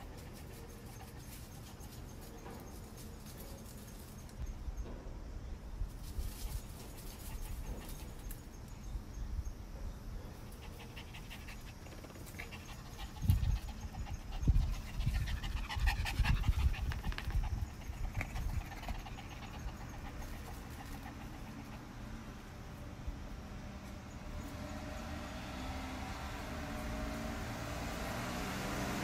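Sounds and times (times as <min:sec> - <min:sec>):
small dogs panting: 0:00.0 - 0:03.8, 0:06.4 - 0:08.4, 0:10.2 - 0:22.4.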